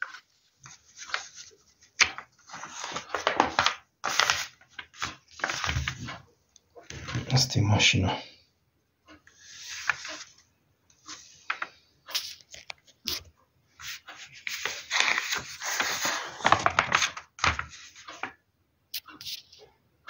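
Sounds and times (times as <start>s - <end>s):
glossy paper pages rustling: 0.0s - 6.2s, 9.2s - 19.7s.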